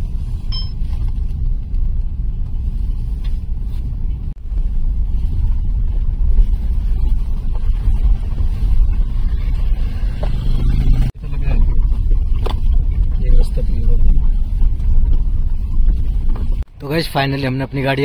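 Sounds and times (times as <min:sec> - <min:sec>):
car engine and road noise: 0:00.0 - 0:18.0.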